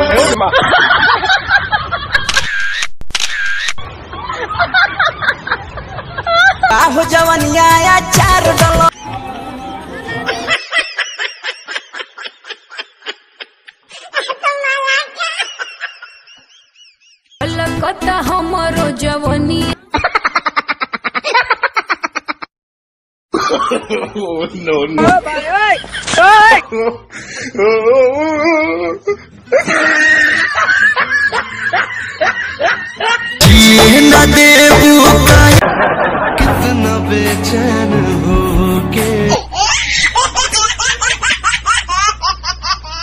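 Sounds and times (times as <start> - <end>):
cartoon laughing sound effect: 2.2 - 3.9, 29.5 - 31.2, 39.3 - 43.0
loud music: 6.8 - 10.0, 33.4 - 35.7, 36.3 - 39.4
person laughing: 10.0 - 16.4, 25.8 - 33.5.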